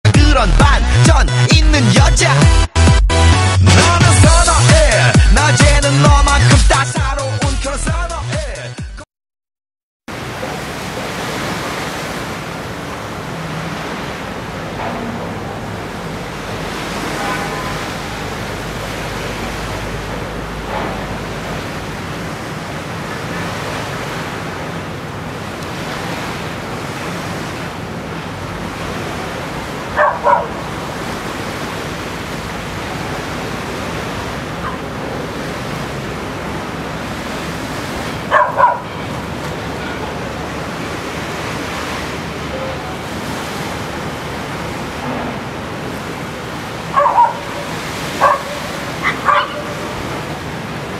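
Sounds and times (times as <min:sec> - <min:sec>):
small waves washing: 0:10.1 - 0:50.9
dog barking: 0:29.9 - 0:30.6, 0:34.6 - 0:34.9, 0:38.3 - 0:39.0, 0:46.9 - 0:50.0.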